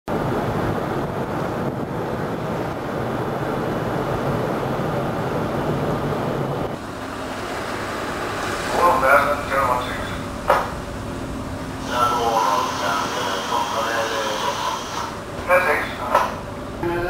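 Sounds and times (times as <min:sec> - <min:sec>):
wind rushing over microphone: 0:00.1 - 0:08.9
low rumble of ship: 0:00.1 - 0:17.0
sea: 0:00.1 - 0:17.0.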